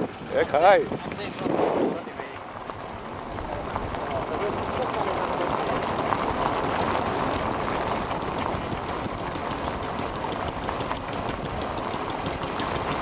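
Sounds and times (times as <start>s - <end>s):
road noise on gravel: 0.0s - 13.0s
wind rushing: 0.5s - 2.4s.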